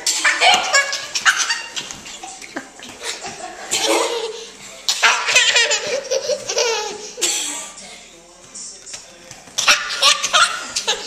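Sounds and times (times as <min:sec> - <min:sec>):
toddler laughing hard: 0:00.0 - 0:02.4, 0:03.0 - 0:07.2.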